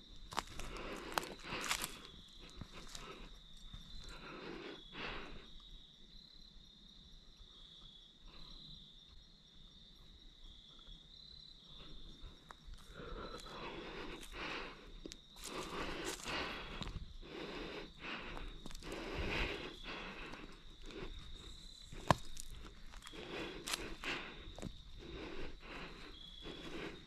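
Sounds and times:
high insect trill: 0.0s - 27.0s
footsteps crunching on dry leaves: 0.3s - 2.1s, 15.4s - 16.9s.

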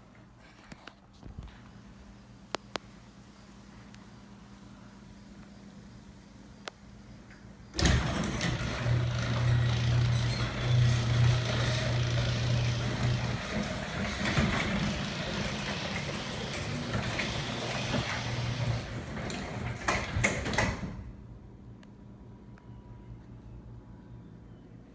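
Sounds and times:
garage door opener motor hum: 7.7s - 21.2s
garage door clunks: 7.8s - 21.2s.

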